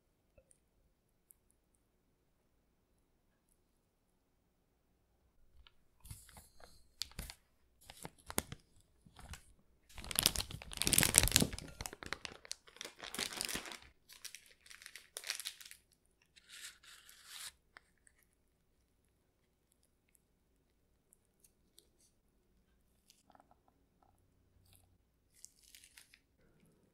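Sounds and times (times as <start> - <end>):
plastic bag crinkling: 7.0 - 17.5, 25.3 - 26.3.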